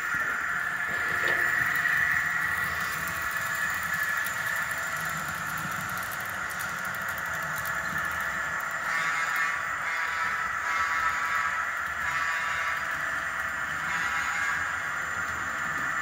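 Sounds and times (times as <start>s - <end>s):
low rumble of model train: 0.0s - 16.0s
model train squeal: 13.7s - 15.0s.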